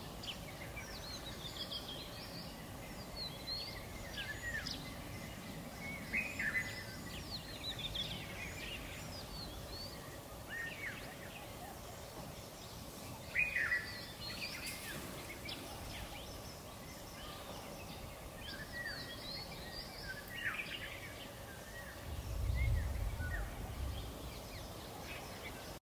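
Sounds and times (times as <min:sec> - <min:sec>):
outdoor background hiss: 0:00.0 - 0:25.8
wild birds chirping: 0:00.0 - 0:25.8
low rumble: 0:22.0 - 0:24.6.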